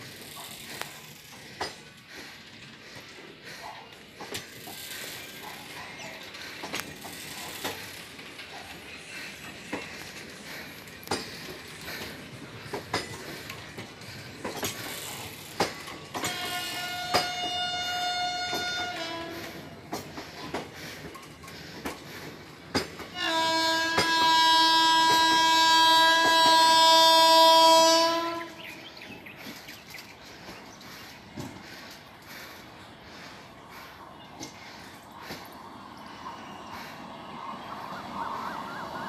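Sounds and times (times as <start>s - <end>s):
wheels clicking over rail joints: 0.0s - 38.2s
train coaches rolling past: 0.0s - 39.0s
locomotive horn: 16.2s - 19.8s, 23.1s - 28.8s.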